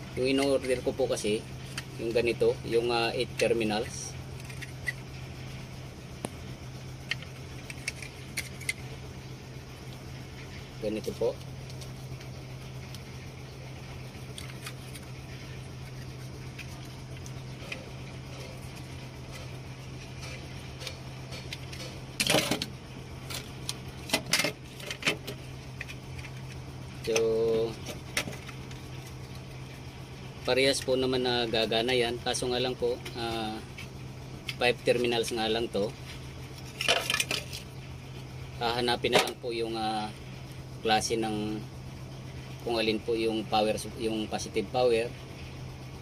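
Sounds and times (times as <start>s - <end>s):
steady low hum: 0.0s - 46.0s
handling clicks and rattling knocks: 14.2s - 29.2s, 36.5s - 37.7s.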